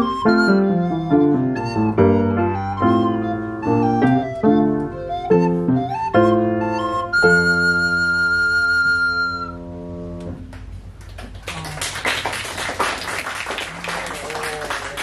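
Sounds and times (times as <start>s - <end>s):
recorder high note: 6.9s - 9.8s
audience applause: 11.0s - 15.0s.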